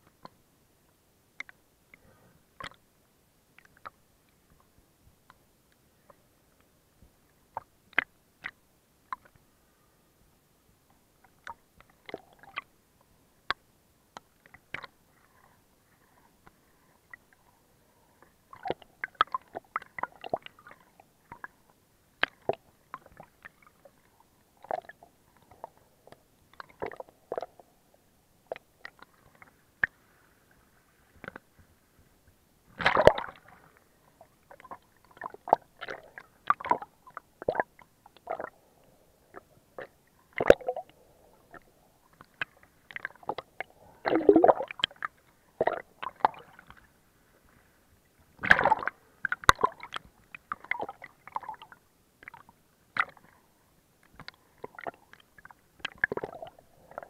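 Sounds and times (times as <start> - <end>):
water lapping and gurgling: 14.4 - 31.6, 32.7 - 57.0.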